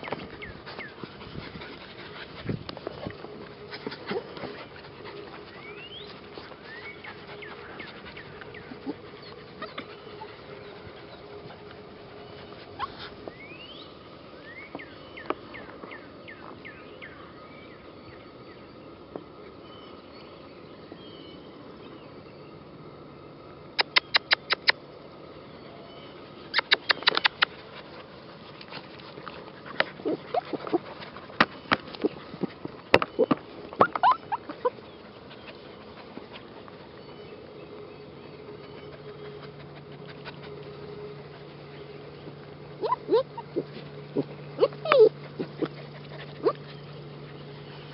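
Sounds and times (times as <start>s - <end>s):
puppies whining: 3.1s - 13.9s, 25.9s - 37.5s, 38.5s - 47.9s
puppies yapping sharply: 33.0s - 34.8s, 42.8s - 46.7s.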